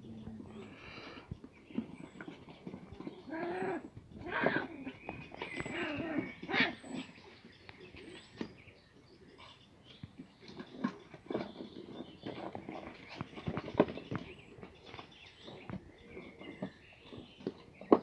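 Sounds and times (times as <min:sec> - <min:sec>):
puppies yipping and whining: 0:01.8 - 0:08.6.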